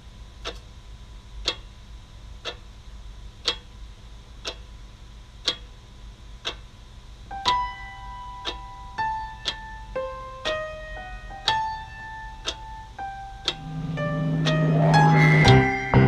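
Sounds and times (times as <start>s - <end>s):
low steady hum: 0.0s - 16.0s
clock ticking: 0.4s - 0.6s, 1.4s - 1.7s, 2.4s - 2.6s, 3.4s - 3.8s, 4.4s - 4.7s, 5.4s - 5.8s, 6.4s - 6.7s, 7.3s - 16.0s
piano notes: 7.3s - 16.0s.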